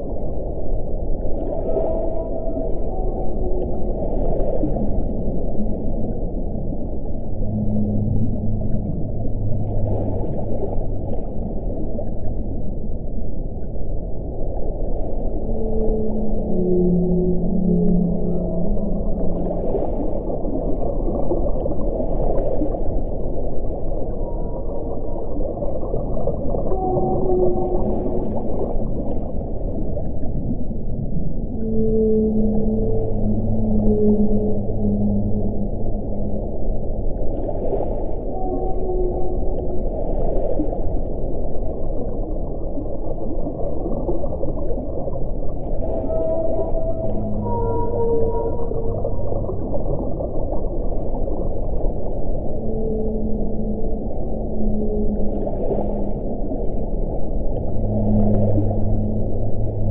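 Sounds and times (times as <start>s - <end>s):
low underwater rushing noise: 0.0s - 59.9s
whale calls moaning: 1.4s - 11.4s, 15.3s - 21.8s, 24.0s - 37.2s, 38.2s - 40.1s, 45.7s - 59.9s.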